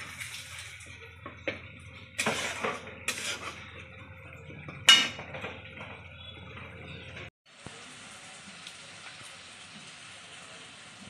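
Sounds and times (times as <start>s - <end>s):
spatula scraping metal pan: 2.1s - 3.9s.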